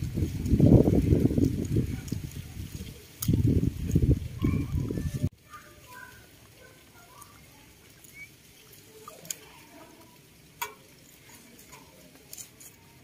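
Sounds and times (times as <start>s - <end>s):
animals nibbling greens: 0.0s - 13.0s
soft ticks: 9.1s - 13.0s.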